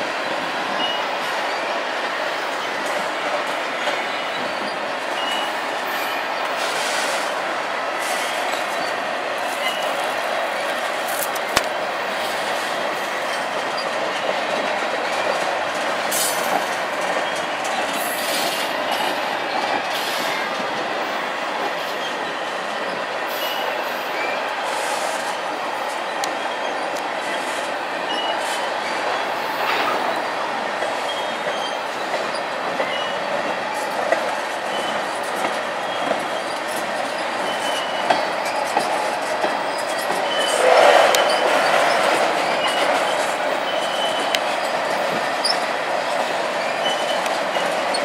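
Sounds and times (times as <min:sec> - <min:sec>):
freight train rumbling on rails: 0:00.0 - 0:48.0
rail clicks: 0:00.0 - 0:48.0
high wheel squeals: 0:35.8 - 0:38.7, 0:39.6 - 0:45.7, 0:46.6 - 0:48.0.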